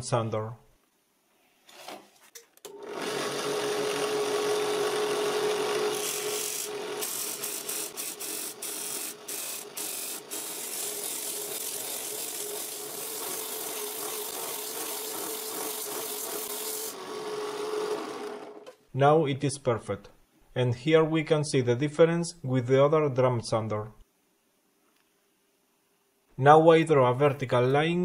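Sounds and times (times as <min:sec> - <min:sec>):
drill press motor hum: 0:02.7 - 0:18.7.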